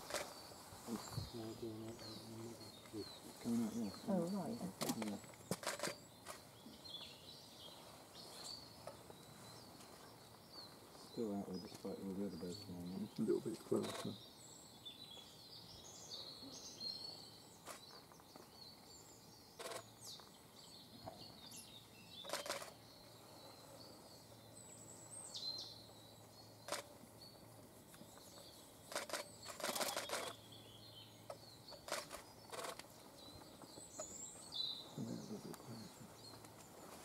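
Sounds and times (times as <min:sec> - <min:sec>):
small birds chirping: 0:00.0 - 0:37.0
short clicks or rustles: 0:04.8 - 0:06.4, 0:22.2 - 0:22.8, 0:28.9 - 0:30.4.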